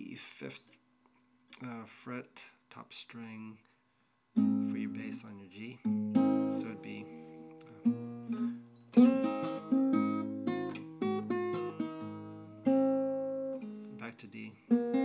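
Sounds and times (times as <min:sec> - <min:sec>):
fingerpicked acoustic guitar: 0:04.4 - 0:15.0.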